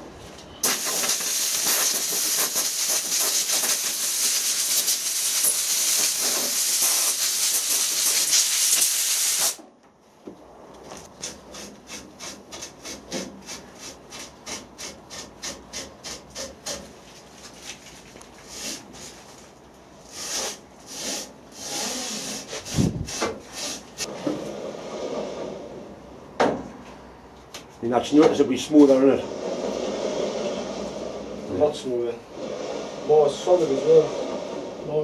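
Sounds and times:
compressed air blow gun hissing: 0.6s - 9.6s
short rubbing strokes: 28.6s - 35.0s.

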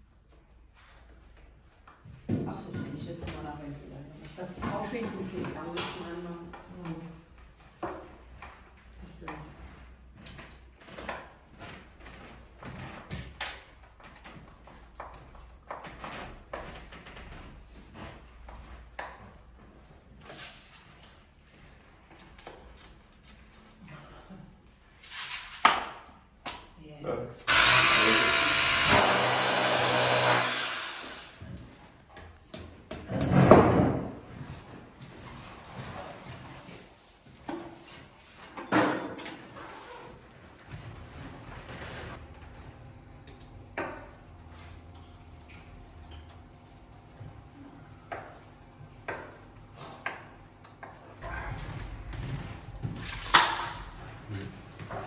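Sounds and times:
cordless drill boring into wall: 27.5s - 31.5s.

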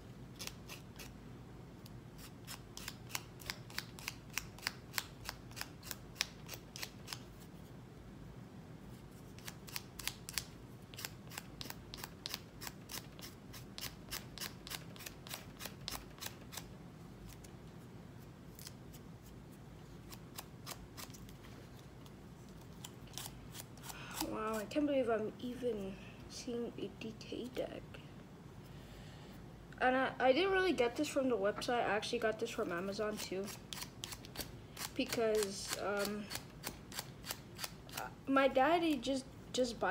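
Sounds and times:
nail file rasping: 0.4s - 1.1s, 2.2s - 7.2s, 9.4s - 16.7s, 33.4s - 38.1s.

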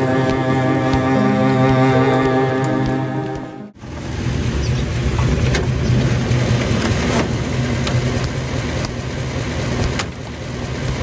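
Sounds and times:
car engine running at low revs: 3.8s - 11.0s.

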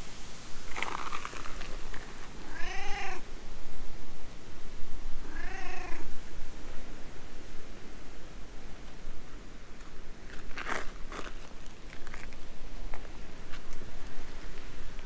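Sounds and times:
cat meowing: 2.5s - 3.2s, 5.2s - 6.0s.

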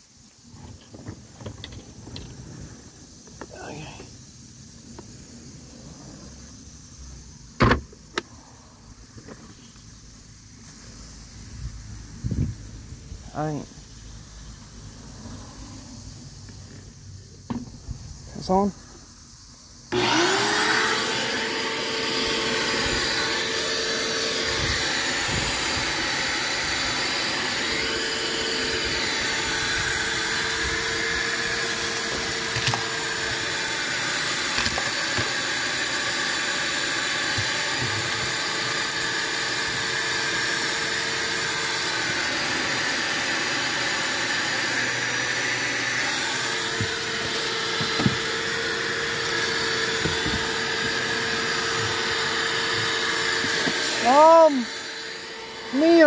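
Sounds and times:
shop vacuum motor whining: 19.9s - 56.0s.

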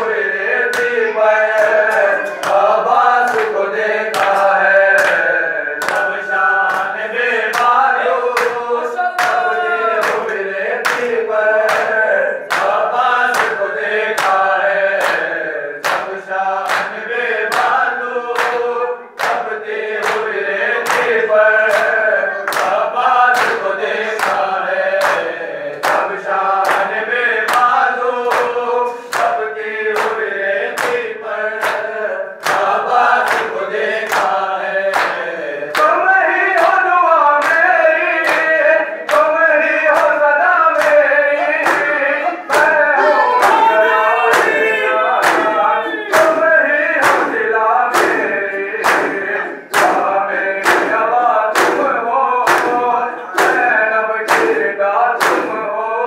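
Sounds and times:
men chanting together: 0.0s - 56.0s
palms slapping chests: 40.8s - 51.0s.

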